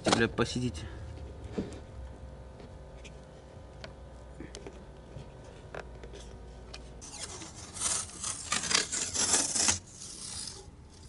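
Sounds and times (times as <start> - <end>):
adhesive tape pulled off roll: 7.0 - 11.0.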